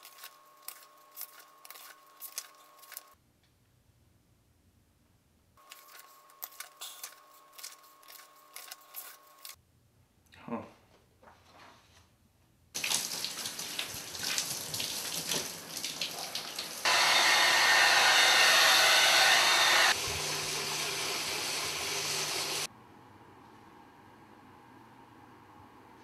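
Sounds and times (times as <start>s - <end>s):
shower running: 12.8s - 16.9s, 19.9s - 22.7s.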